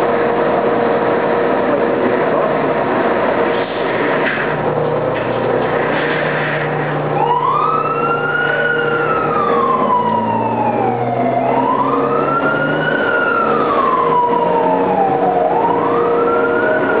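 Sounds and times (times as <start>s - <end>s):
truck engine running: 0.0s - 17.0s
fire engine siren wailing: 5.8s - 17.0s.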